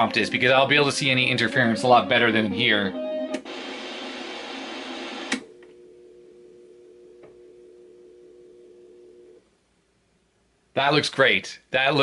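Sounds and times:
faint electronic hum: 0:03.4 - 0:10.6.

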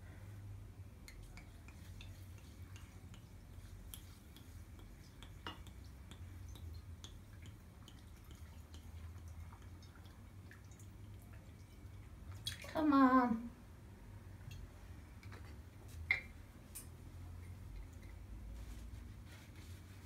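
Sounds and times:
water trickling into a jar: 0:01.1 - 0:12.8.

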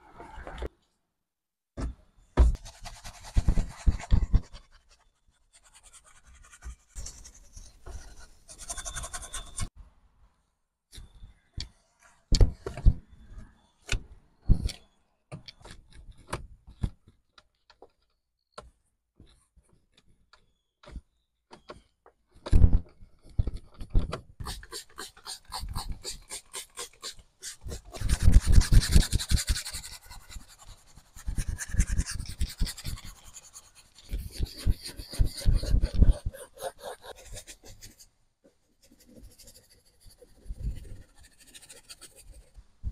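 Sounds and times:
brush scrubbing plastic trim: 0:24.4 - 0:38.0.

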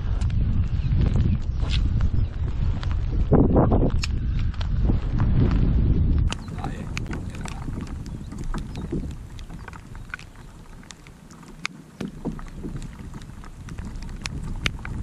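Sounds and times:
wind buffeting microphone: 0:00.0 - 0:15.0
raindrops ticking on camera: 0:03.9 - 0:15.0.

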